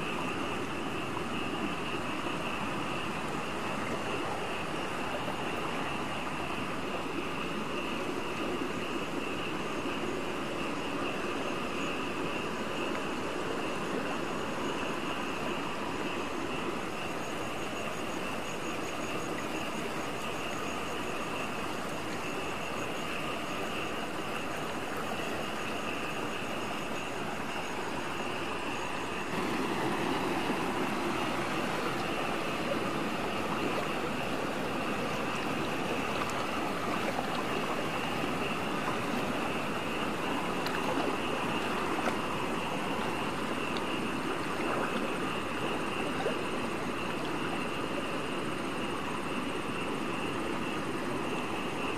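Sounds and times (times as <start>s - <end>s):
night insects buzzing: 0.0s - 51.9s
shallow water sloshing: 29.3s - 47.8s.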